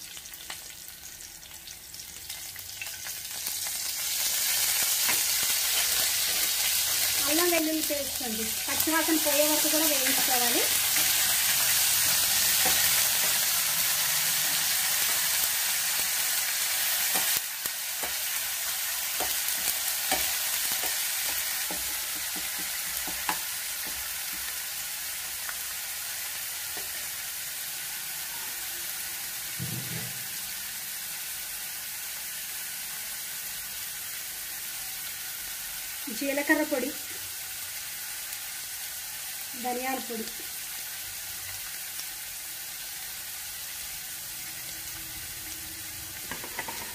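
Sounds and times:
paste sizzling in hot oil: 0:00.0 - 0:46.9
spoon scraping a pan: 0:10.0 - 0:13.6, 0:19.0 - 0:24.5, 0:46.2 - 0:46.9.

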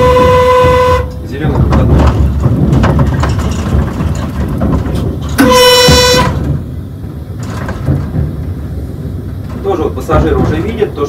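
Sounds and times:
train horn blast: 0:00.0 - 0:01.3, 0:05.4 - 0:06.6
train rumbling on track: 0:00.0 - 0:11.0.

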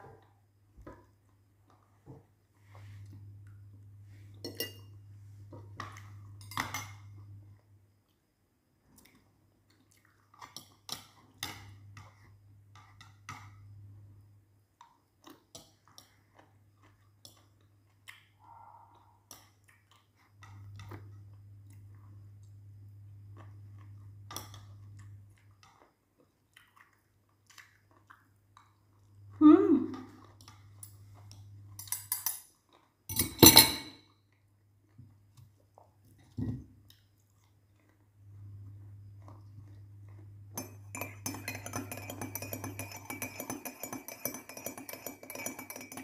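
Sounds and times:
low steady hum: 0:00.0 - 0:15.2, 0:16.2 - 0:26.2, 0:27.4 - 0:46.0
person chewing food: 0:23.2 - 0:29.3, 0:36.8 - 0:40.4
cutlery clicking on glass bowl: 0:40.6 - 0:46.0.

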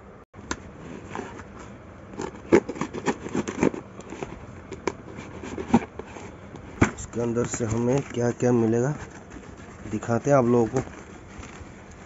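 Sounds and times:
knife cutting cardboard and tape: 0:02.2 - 0:11.9.

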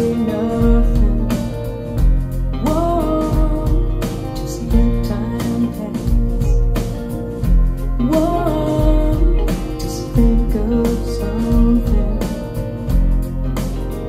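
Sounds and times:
woman singing: 0:00.0 - 0:01.9, 0:02.6 - 0:06.9, 0:08.0 - 0:12.7
guitar and bass: 0:00.0 - 0:14.0.

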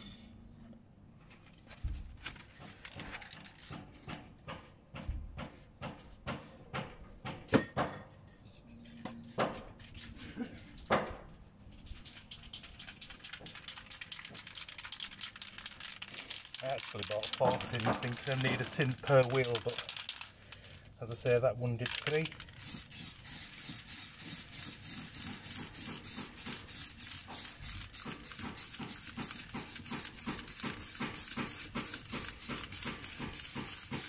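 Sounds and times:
spray can ball rattling: 0:11.7 - 0:34.0.

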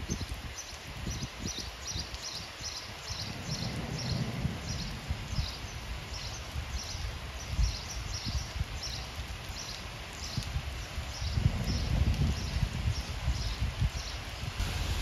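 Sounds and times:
rain falling into water: 0:00.0 - 0:15.0
low rumbles: 0:14.5 - 0:15.0.

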